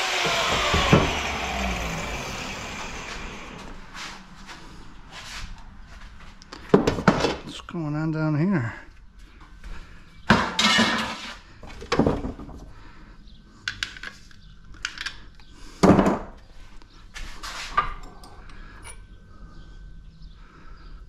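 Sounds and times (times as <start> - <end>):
scrap metal clanking: 10.4 - 11.4.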